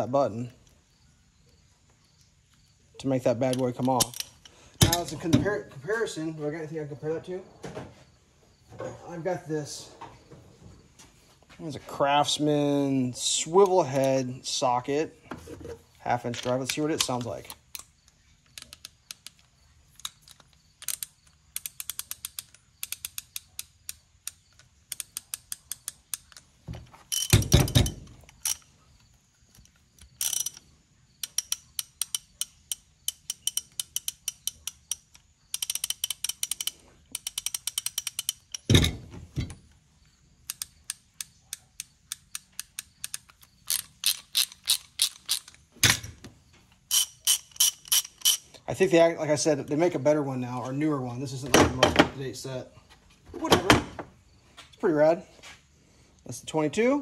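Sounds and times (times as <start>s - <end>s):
ratchet pawl clicking: 18.5s - 26.4s, 30.0s - 30.6s, 31.2s - 38.7s, 40.4s - 45.6s, 46.9s - 48.4s.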